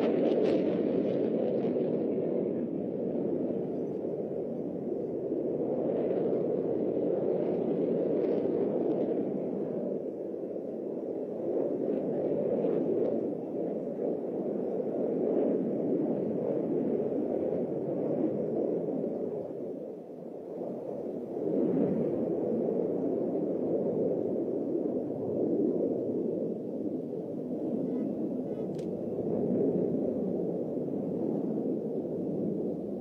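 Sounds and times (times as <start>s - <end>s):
jet engine rush: 20.9s - 33.0s.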